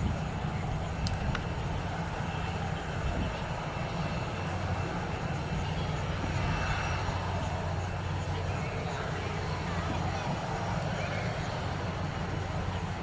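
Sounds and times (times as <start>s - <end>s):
jet engines rumbling: 0.0s - 13.0s
faint ticks: 1.0s - 1.5s.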